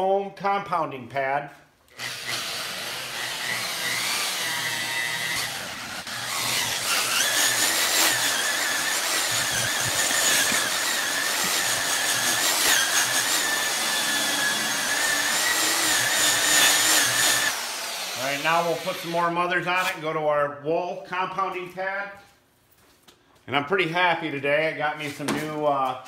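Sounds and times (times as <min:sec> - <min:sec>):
electric polisher motor whining: 0:01.9 - 0:19.0.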